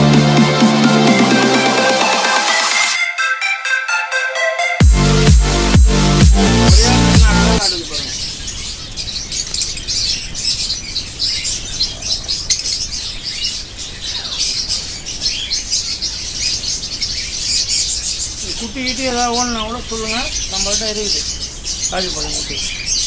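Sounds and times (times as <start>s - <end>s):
small birds chirping: 4.8s - 23.0s.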